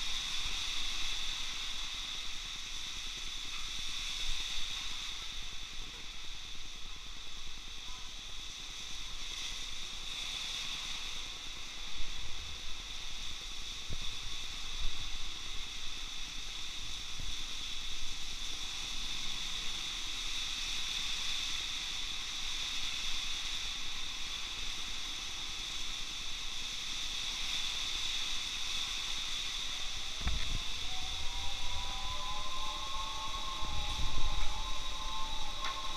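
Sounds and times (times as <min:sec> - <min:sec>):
heavy rain on wet street: 0:00.0 - 0:31.7
low rumbles: 0:29.7 - 0:35.9.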